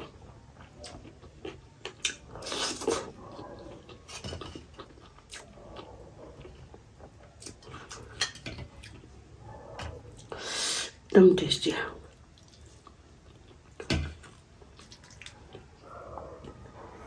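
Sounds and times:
chewing and wet mouth sounds: 0.0 - 17.0.

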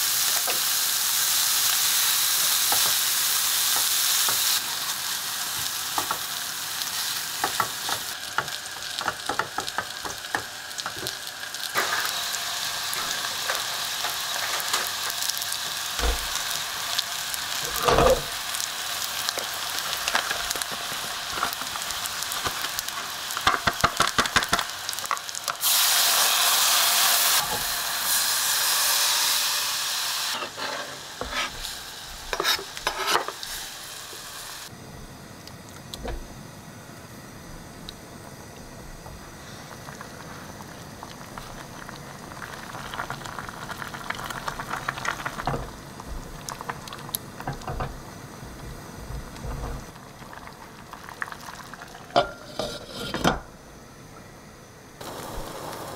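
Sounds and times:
food sizzling in a pan: 0.0 - 55.9
utensils scraping a pan: 30.3 - 31.7, 32.3 - 33.4, 52.2 - 53.4.

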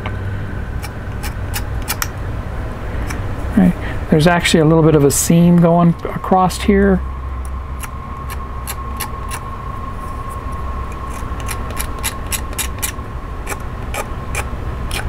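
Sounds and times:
steady thin tone: 0.0 - 14.6
low background rumble: 0.0 - 15.0.

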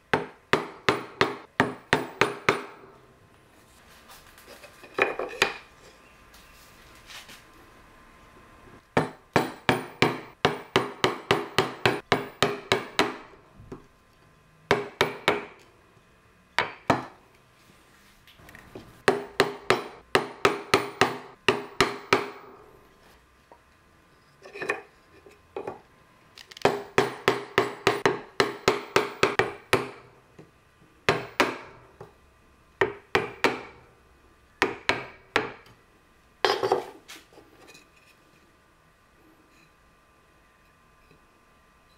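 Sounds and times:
mallet striking chisel into wood: 0.1 - 2.8, 9.0 - 13.3, 14.7 - 15.6, 16.6 - 17.2, 19.0 - 22.5, 26.6 - 30.0, 31.1 - 31.8, 32.8 - 33.8, 34.6 - 35.7.

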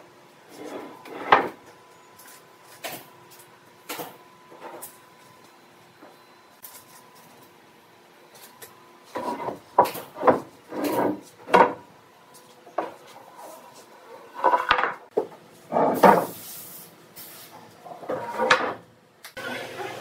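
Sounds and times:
wood scraping against wood: 9.1 - 11.8, 12.8 - 15.0.

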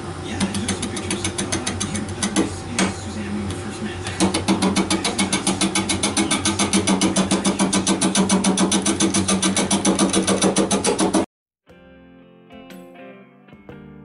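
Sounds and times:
lathe humming: 0.0 - 11.3
rhythmic knocking of lathe tool: 0.4 - 3.0, 4.1 - 11.3.

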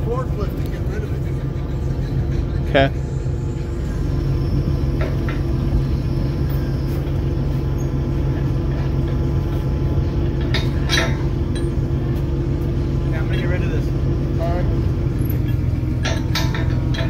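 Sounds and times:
truck engine idling: 0.0 - 17.0
wrench clinking on metal: 15.2 - 17.0.

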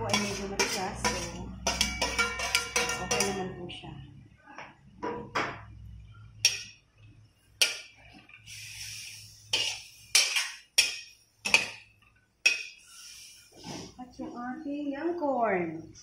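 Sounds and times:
metal spoon clinking on wok: 0.0 - 3.6, 6.4 - 6.8
spoon scraping a pan: 0.0 - 3.6, 6.4 - 6.8, 7.6 - 14.0.

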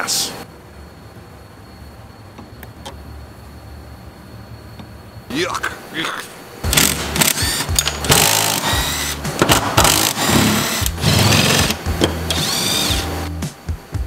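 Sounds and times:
background music: 6.6 - 14.0
cordless drill motor whine: 6.7 - 13.3.

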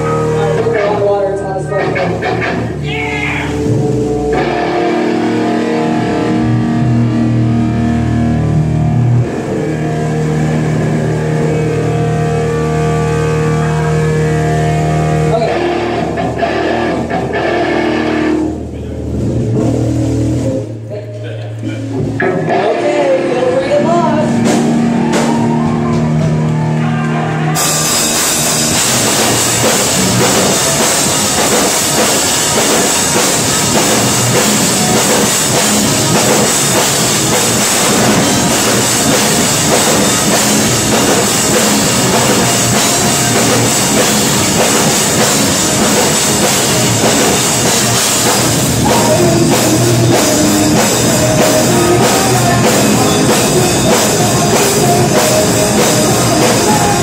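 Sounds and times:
bass guitar: 0.0 - 57.0
electric guitars: 0.0 - 57.0
person singing: 22.2 - 24.5, 48.7 - 57.0
drums and cymbals: 24.1 - 26.4, 27.5 - 57.0.

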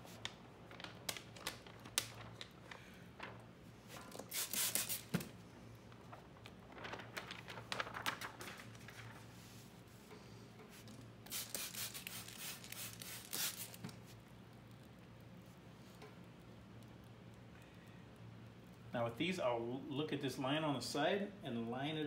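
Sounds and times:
plastic film crinkling: 0.0 - 9.8, 11.3 - 14.2.

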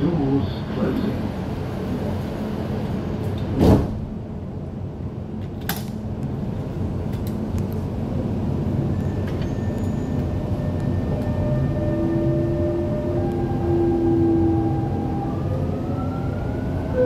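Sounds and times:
train rumbling in tunnel: 0.0 - 17.0
loud thump: 3.6 - 4.1.

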